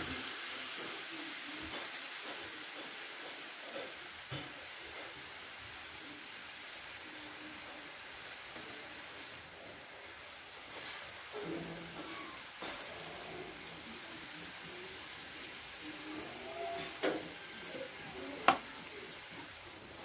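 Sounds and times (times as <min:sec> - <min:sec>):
vegetables sizzling in oil: 0:00.0 - 0:20.0
wooden spoon scraping a pan: 0:10.6 - 0:13.9.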